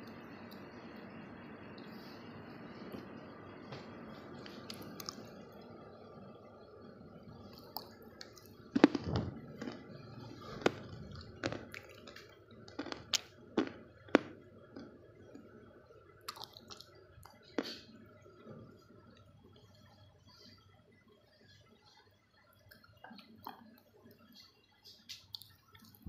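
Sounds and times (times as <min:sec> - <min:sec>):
dry clay crunching and cracking: 0:07.6 - 0:14.9.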